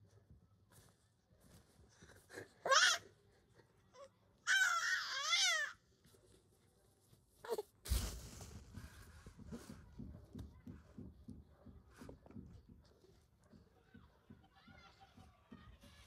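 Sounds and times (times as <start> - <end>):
baby squealing: 4.5 - 5.8.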